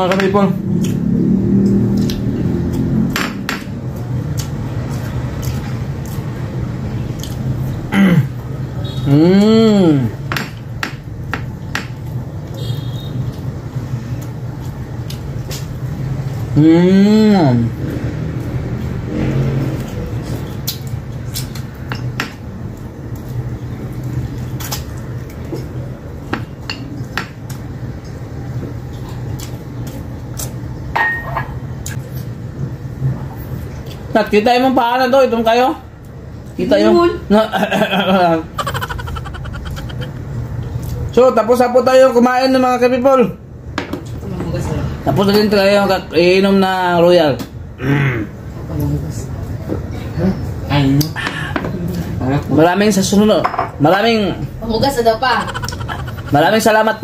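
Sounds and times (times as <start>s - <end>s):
chewing: 4.0s - 6.4s, 7.1s - 7.8s, 28.8s - 30.7s, 38.6s - 41.1s
glassware clinking: 31.0s - 31.6s.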